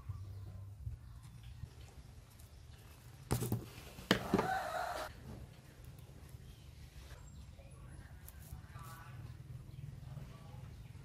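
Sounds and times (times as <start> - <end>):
chicken calling: 4.2 - 5.1.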